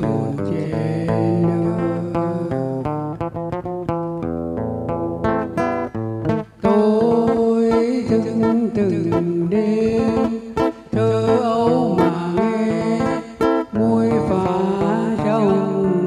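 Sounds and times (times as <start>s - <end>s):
man singing into microphone: 0.0s - 2.9s, 6.6s - 16.0s
acoustic guitar plucked notes: 0.0s - 16.0s.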